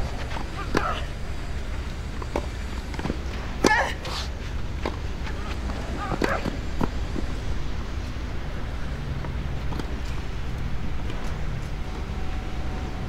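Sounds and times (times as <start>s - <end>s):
tennis ball knocks: 4.8s - 7.0s.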